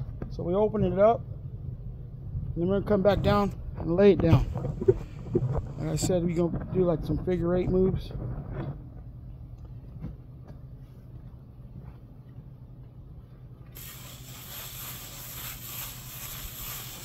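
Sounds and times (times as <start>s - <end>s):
steady low hum: 0.0s - 17.0s
float hissing over plaster: 13.8s - 17.0s.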